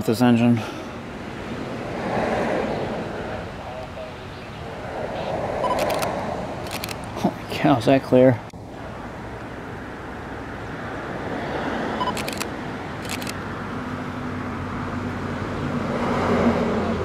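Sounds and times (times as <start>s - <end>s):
passing vehicle rushing: 0.9s - 7.3s, 8.6s - 17.0s.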